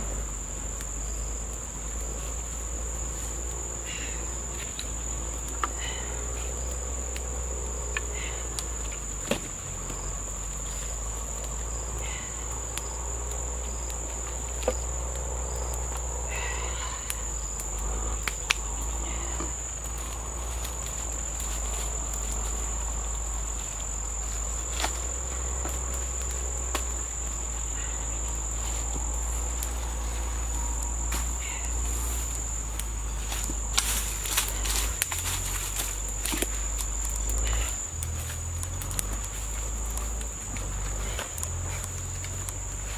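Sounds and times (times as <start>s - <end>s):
insects chirring: 0.0s - 42.9s.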